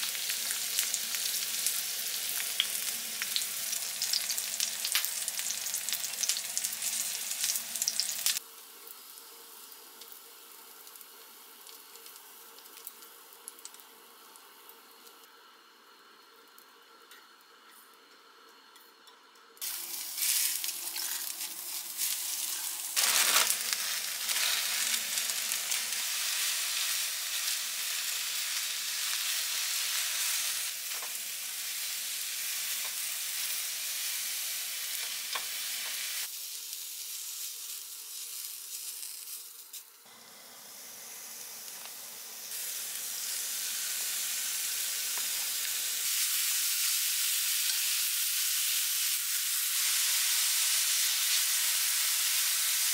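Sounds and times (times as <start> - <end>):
meat frying in pan: 0.0 - 15.3, 19.6 - 52.9
vegetables sizzling in a frying pan: 0.0 - 15.3, 19.6 - 52.9
chopsticks stirring in pan: 19.6 - 27.6.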